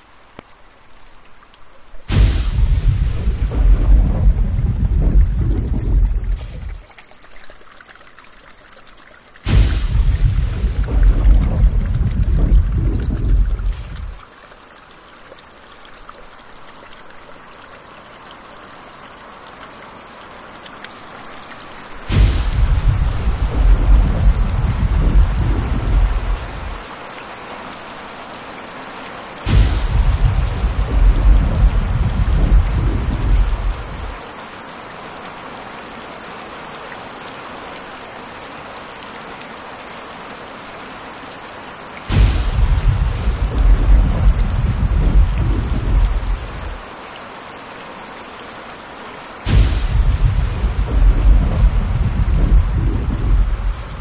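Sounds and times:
heavy rain: 0.0 - 54.0
thunder cracks and rumbles: 2.1 - 6.8, 9.5 - 14.2, 22.0 - 26.8, 29.5 - 34.2, 42.1 - 46.8, 49.5 - 54.0.

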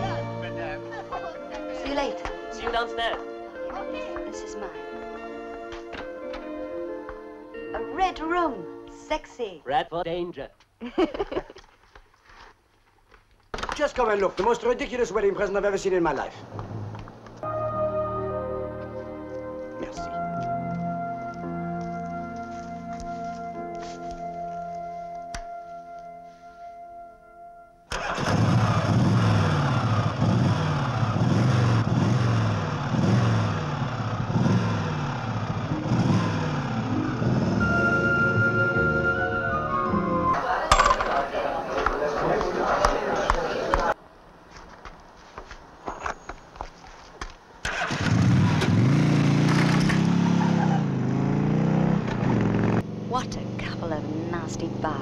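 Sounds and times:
motorcycle engine revving: 27.9 - 38.0, 47.7 - 55.0.

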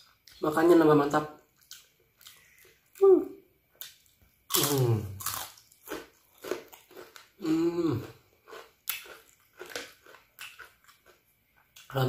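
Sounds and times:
crunching bites of cracker: 3.8 - 11.2.

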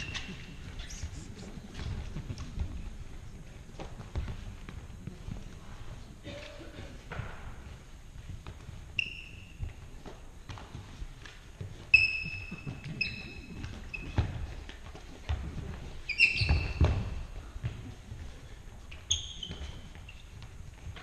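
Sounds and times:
shoes squeaking on wooden floor: 0.0 - 21.0
dull thumps of feet and bodies: 9.6 - 18.3.

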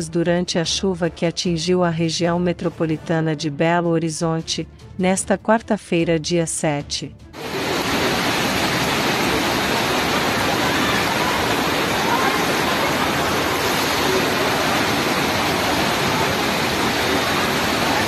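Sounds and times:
floodwater rushing: 7.4 - 18.0.

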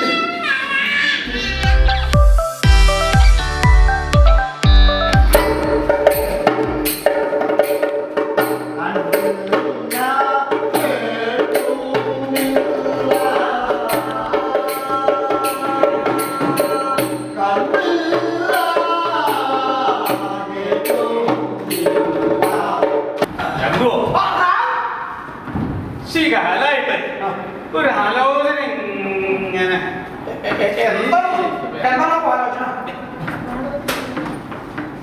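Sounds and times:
hand drum: 1.6 - 23.3
voices singing: 8.8 - 23.5.

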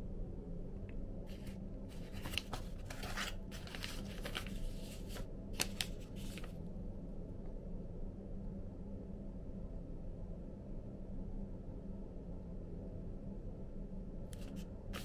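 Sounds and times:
steady low hum: 0.0 - 15.0
rustling: 1.3 - 6.6.

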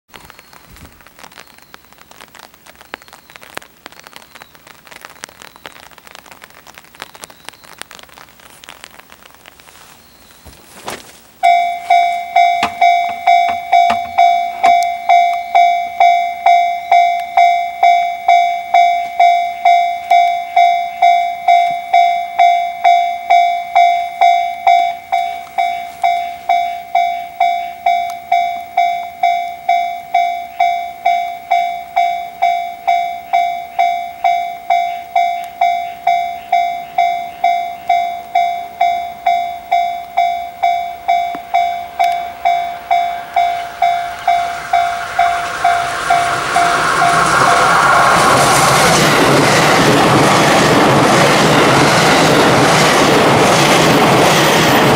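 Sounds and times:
approaching electric train: 11.4 - 54.9
level-crossing warning bell: 11.4 - 54.9.

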